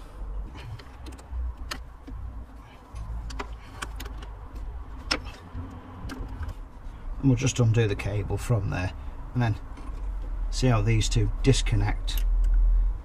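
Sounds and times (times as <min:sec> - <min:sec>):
metallic clicks of throttle linkage: 0:00.0 - 0:06.7, 0:12.0 - 0:12.6.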